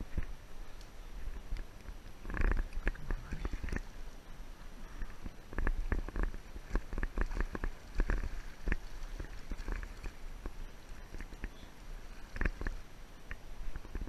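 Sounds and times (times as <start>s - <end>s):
low rumble on microphone: 0.0s - 14.0s.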